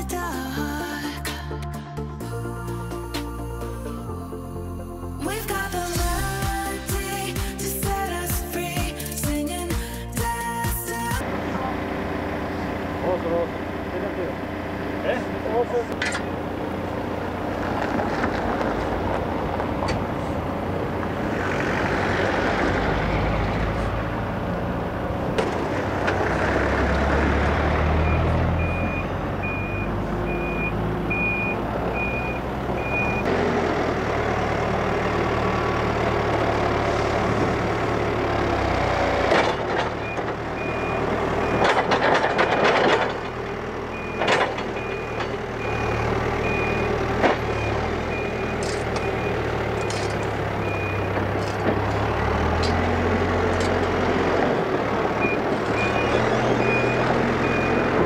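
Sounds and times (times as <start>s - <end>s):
diesel engine running under load: 5.2s - 58.0s
reversing alarm beeping: 28.0s - 33.3s, 40.0s - 43.2s, 43.9s - 51.2s, 55.2s - 58.0s.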